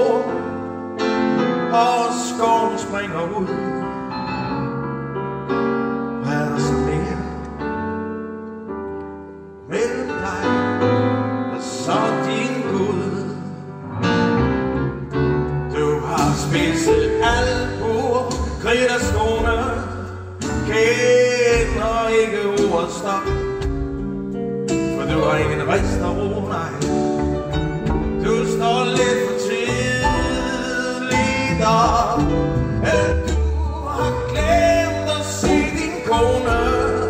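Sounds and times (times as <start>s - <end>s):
man singing: 0.0s - 4.0s, 6.1s - 7.8s, 9.6s - 13.8s, 15.6s - 24.0s, 24.7s - 37.0s
live band with piano: 0.0s - 37.0s.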